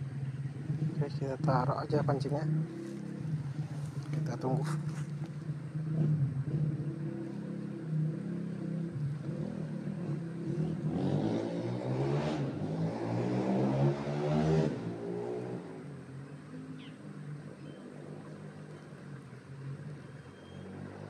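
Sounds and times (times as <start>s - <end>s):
motor engine humming: 0.0s - 11.0s.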